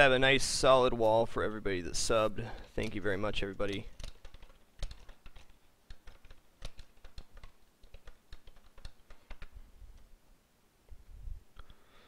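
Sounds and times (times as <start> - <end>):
typing on computer keyboard: 2.8 - 9.6.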